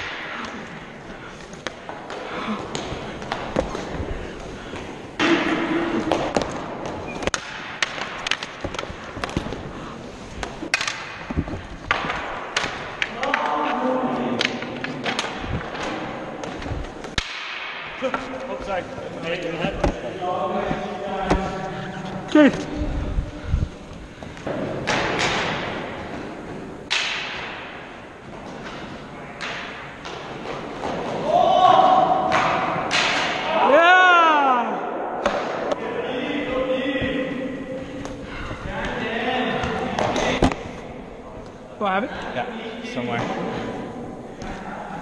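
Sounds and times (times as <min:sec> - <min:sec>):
hockey sticks and puck clacking: 0:00.0 - 0:22.6, 0:24.3 - 0:33.7, 0:35.2 - 0:35.9, 0:37.1 - 0:41.6
noisy scuffle: 0:00.0 - 0:26.8.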